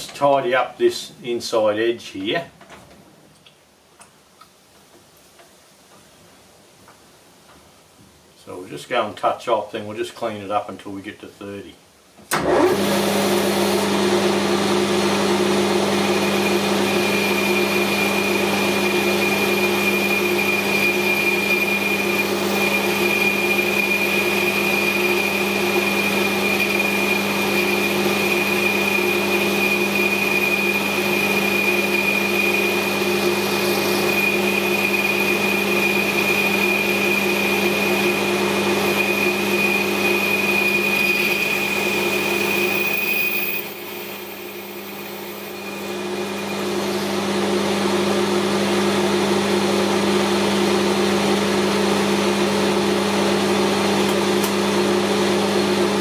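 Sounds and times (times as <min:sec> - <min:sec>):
metal lathe running: 0:14.7 - 0:50.5
high steady whine: 0:15.8 - 0:50.0.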